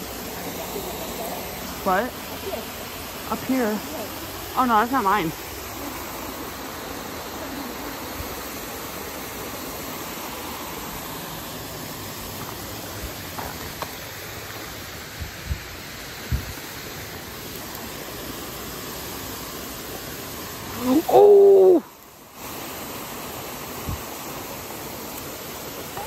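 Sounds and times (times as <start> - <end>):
water rushing over a spillway: 0.0 - 26.0.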